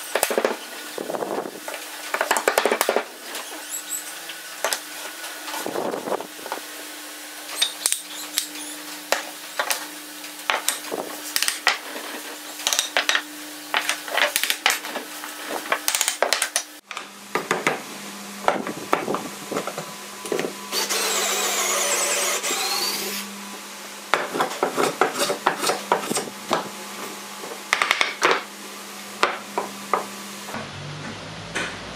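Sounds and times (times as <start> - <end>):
hand plane shaving wood: 24.3 - 26.3.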